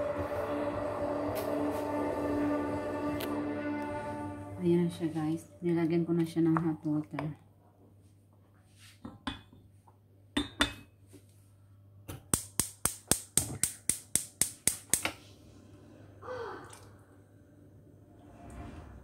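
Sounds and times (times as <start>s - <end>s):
wooden spoon knocking metal pot: 10.4s - 10.9s.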